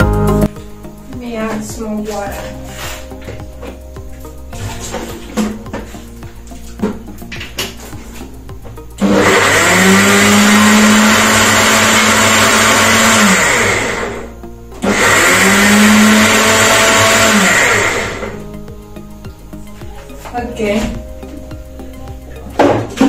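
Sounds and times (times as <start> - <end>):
blender motor whining: 9.0 - 18.4.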